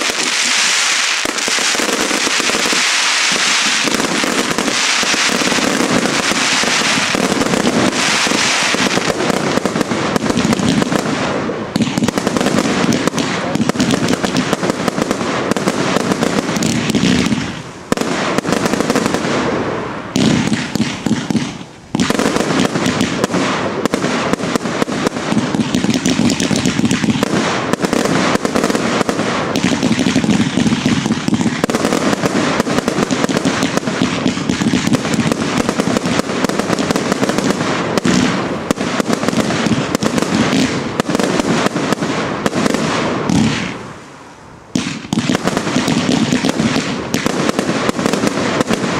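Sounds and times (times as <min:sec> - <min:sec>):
fireworks firing and bursting: 0:00.0 - 0:48.9.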